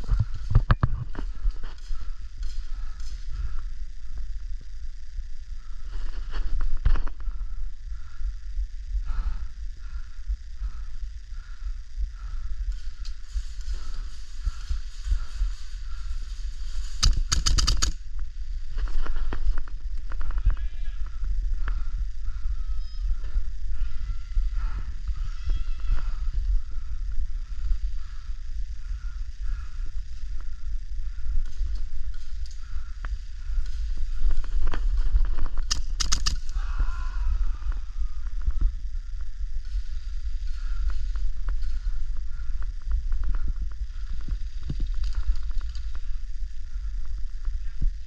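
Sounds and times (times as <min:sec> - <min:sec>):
steady low rumble: 0:00.0 - 0:48.0
sharp clicks and ticks: 0:16.7 - 0:18.0, 0:31.3 - 0:36.6
clicks and creaks of gear: 0:16.8 - 0:18.0, 0:34.6 - 0:36.6.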